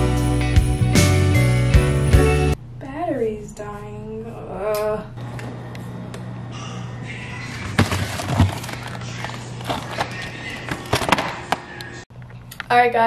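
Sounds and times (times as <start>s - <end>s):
cardboard box crinkling: 7.6s - 11.3s.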